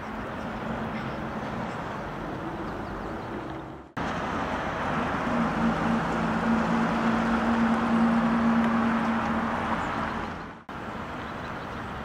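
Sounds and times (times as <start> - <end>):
road traffic noise: 0.0 - 12.0
car engine humming: 4.0 - 11.0.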